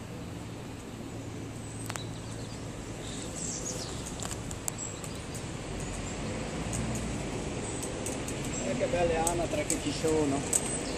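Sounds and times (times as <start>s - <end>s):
sharp clicks: 3.8s - 10.9s.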